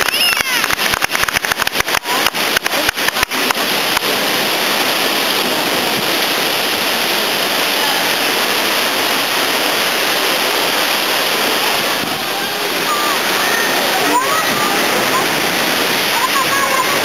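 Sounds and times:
sharp clicks: 0.0 - 4.0
sea surf surging against rocks: 0.0 - 17.0.

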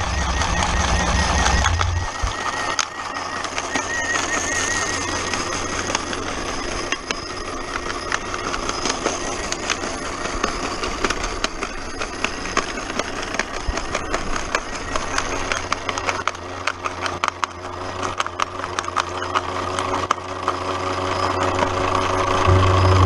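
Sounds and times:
electric motor humming: 0.0 - 23.0.

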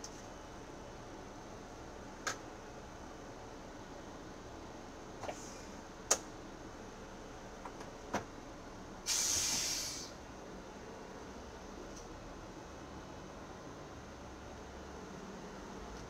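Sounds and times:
compressed air hissing: 9.1 - 10.2
steady background hum: 9.9 - 16.0.

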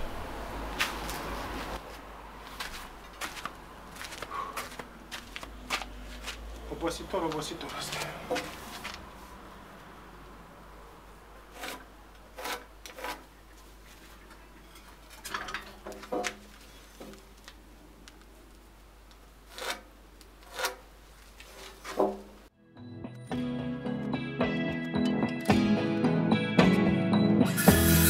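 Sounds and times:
rasping strokes on wood: 11.5 - 13.4, 19.5 - 22.0.

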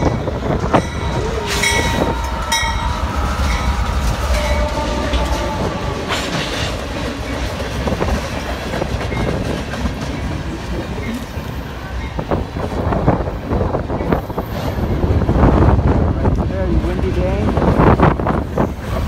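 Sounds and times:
wheels clacking over rail joints: 0.0 - 12.5
diesel locomotive passing: 0.0 - 19.0
freight cars rumbling: 0.0 - 19.0.

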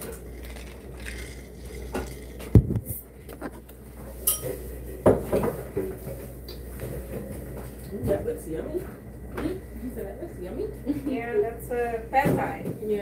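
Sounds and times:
tableware knocks and clinks: 4.2 - 5.6.

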